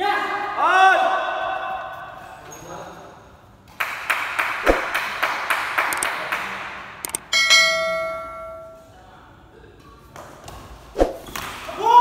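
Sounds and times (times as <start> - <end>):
quick clicks: 7.0 - 7.2
bell ding: 7.3 - 8.9.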